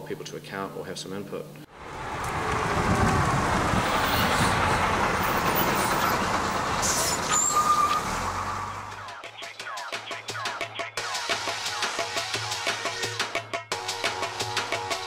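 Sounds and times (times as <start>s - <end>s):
bus passing: 1.7s - 9.1s
short high squeal: 6.8s - 8.8s.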